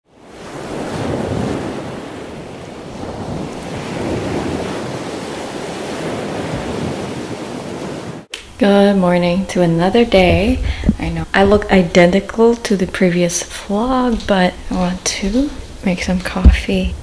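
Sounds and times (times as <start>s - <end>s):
waves washing on water: 0.1s - 8.6s
wind buffeting microphone: 0.3s - 17.0s.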